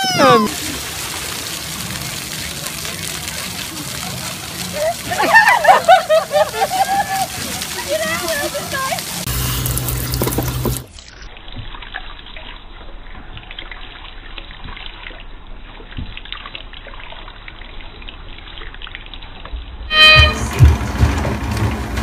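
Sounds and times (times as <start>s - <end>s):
water spraying from sink sprayer: 0.0s - 10.9s
louder rush of water: 0.0s - 11.0s.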